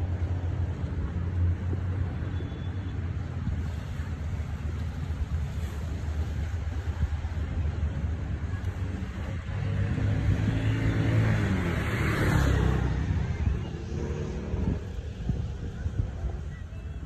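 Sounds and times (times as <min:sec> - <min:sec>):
vehicle engine passing by: 0:09.3 - 0:15.1.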